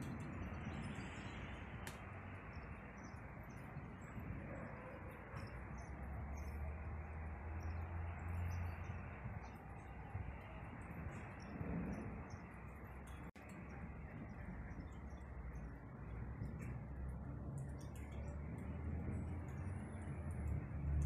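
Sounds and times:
steady outdoor background noise: 0:00.0 - 0:21.0
low thunder rumble: 0:08.2 - 0:21.0.

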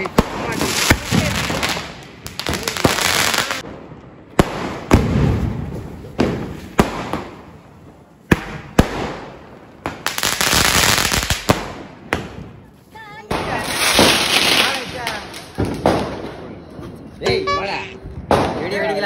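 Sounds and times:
firecracker bangs: 0:04.4 - 0:07.5, 0:13.3 - 0:16.4, 0:18.2 - 0:18.8.

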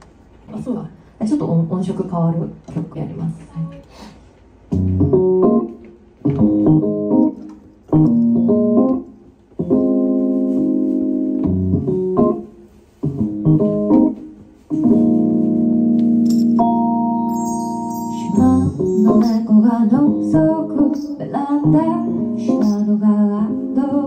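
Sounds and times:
organ-like keyboard chords: 0:04.8 - 0:12.5, 0:13.1 - 0:21.0.

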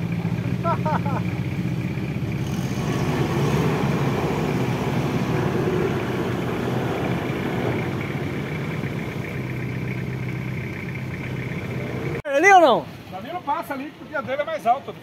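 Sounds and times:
truck engine at low revs: 0:00.0 - 0:12.2.

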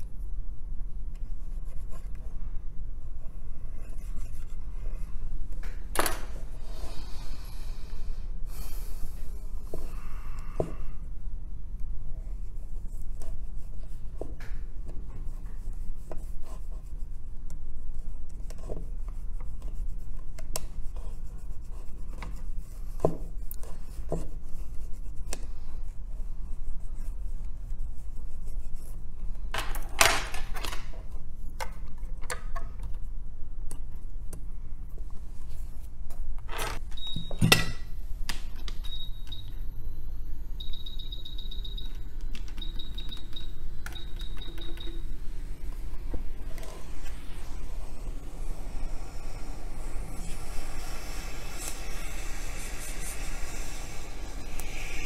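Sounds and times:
steady low hum: 0:31.0 - 0:55.0
high steady tone: 0:38.8 - 0:55.0.

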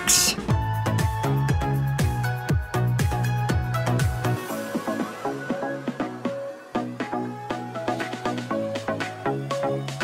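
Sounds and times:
electronic music with thumping beat: 0:00.0 - 0:10.0.

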